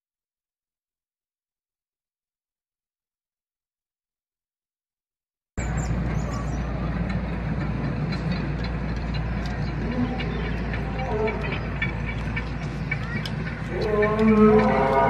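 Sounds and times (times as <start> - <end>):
low outdoor rumble: 5.6 - 15.0.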